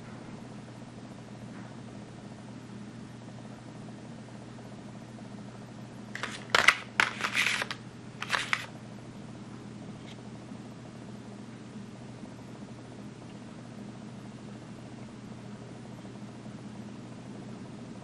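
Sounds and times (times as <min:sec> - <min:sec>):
plastic blister pack crackling: 0:06.2 - 0:08.7.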